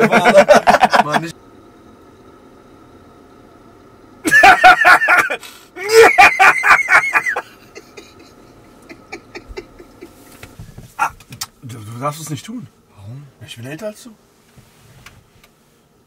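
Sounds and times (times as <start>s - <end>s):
man laughing loudly: 0.0s - 1.3s, 4.2s - 10.3s.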